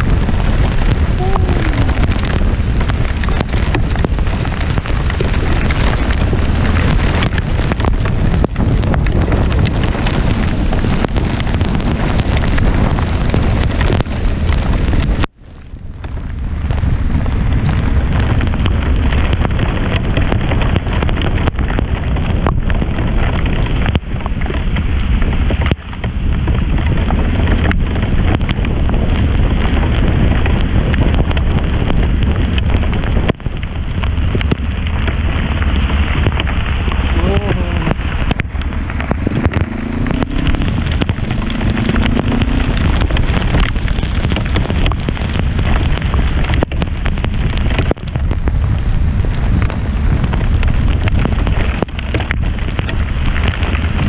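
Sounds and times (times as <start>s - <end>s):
rain and wind on microphone: 0.0s - 54.0s.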